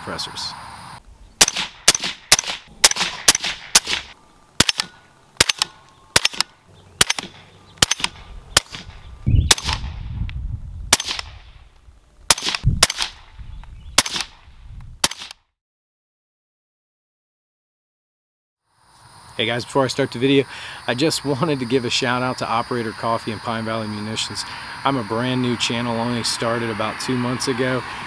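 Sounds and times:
suppressed rifle shots: 0:01.4 - 0:10.0, 0:10.9 - 0:11.6, 0:12.3 - 0:13.3, 0:14.0 - 0:14.4, 0:15.0 - 0:15.4.

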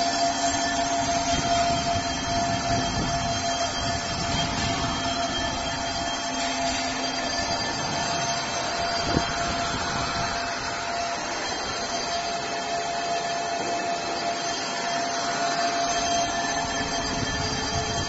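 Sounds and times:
brake lathe running: 0:00.0 - 0:18.0.

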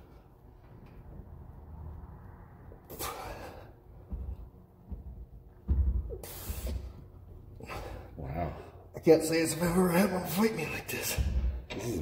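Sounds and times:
man breathing heavily: 0:02.7 - 0:08.9.

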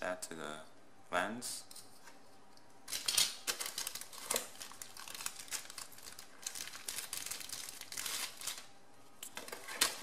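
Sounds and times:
plastic bags crinkling: 0:02.9 - 0:08.7.

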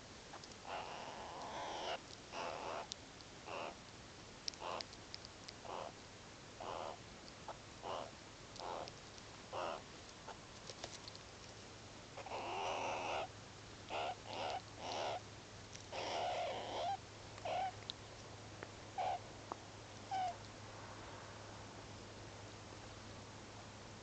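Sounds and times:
meerkats calling: 0:00.4 - 0:03.8, 0:04.5 - 0:04.9, 0:05.6 - 0:06.0, 0:06.6 - 0:08.9, 0:09.5 - 0:10.4, 0:12.2 - 0:13.3, 0:13.9 - 0:15.2, 0:15.9 - 0:17.8, 0:19.0 - 0:19.2, 0:20.1 - 0:20.4.

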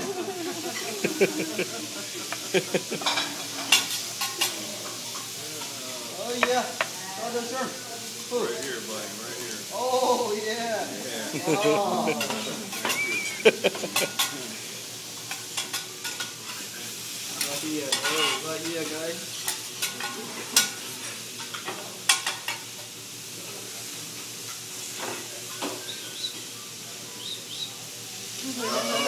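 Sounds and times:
food sizzling on griddle: 0:00.0 - 0:29.0
metal utensils clacking on griddle: 0:01.6 - 0:05.7, 0:12.1 - 0:14.5, 0:15.2 - 0:16.7, 0:17.3 - 0:22.9.

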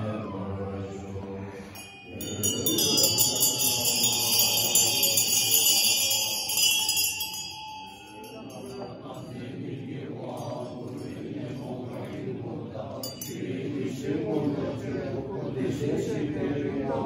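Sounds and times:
low voices: 0:00.0 - 0:17.0
hand bell ringing: 0:01.7 - 0:09.4, 0:13.0 - 0:13.6.

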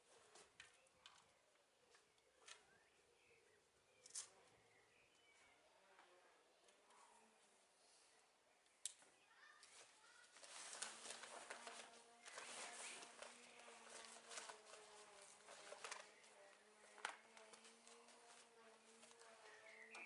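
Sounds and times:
plastic tarpaulin rustling: 0:09.7 - 0:20.0.

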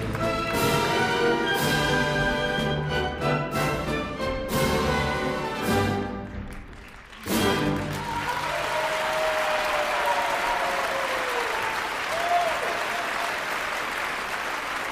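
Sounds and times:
audience applauding: 0:00.0 - 0:01.5, 0:06.1 - 0:14.9.

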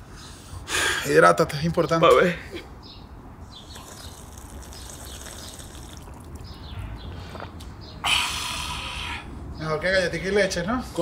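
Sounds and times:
man gulping water: 0:03.7 - 0:06.6.

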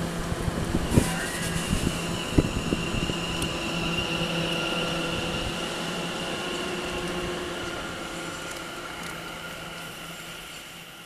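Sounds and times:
electric train whine and hum: 0:00.0 - 0:11.0.

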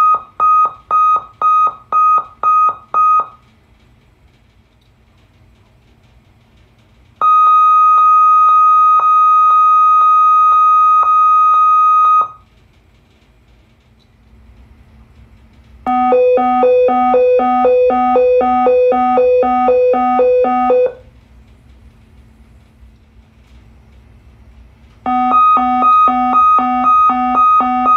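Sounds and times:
high pulsing alarm tone: 0:15.9 - 0:21.0, 0:25.1 - 0:27.9
lower two-note alarm tone: 0:15.9 - 0:21.0, 0:25.1 - 0:27.9.

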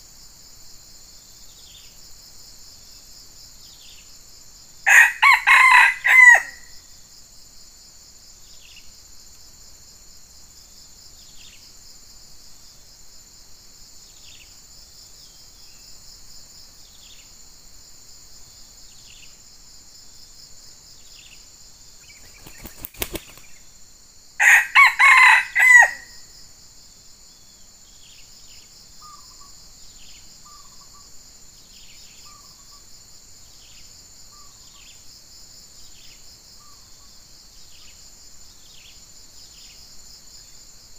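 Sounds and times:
high insect drone: 0:00.0 - 0:40.9
rooster crowing: 0:04.9 - 0:06.8, 0:24.4 - 0:26.3
faint bird chirps: 0:21.0 - 0:23.7, 0:27.9 - 0:32.9, 0:33.6 - 0:35.1.

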